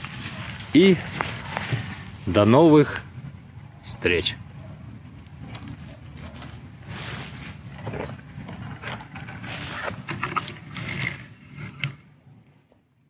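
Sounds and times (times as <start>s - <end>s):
dry grass rustling: 0.0s - 2.8s, 5.4s - 11.4s
low wind rumble: 0.0s - 9.8s.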